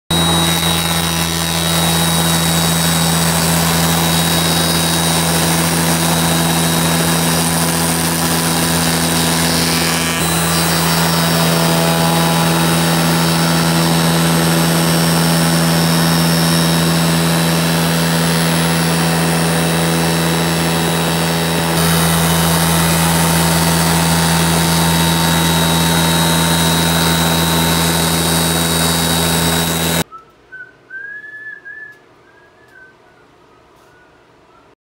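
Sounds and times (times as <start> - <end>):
router spindle whining: 0.1 - 30.1.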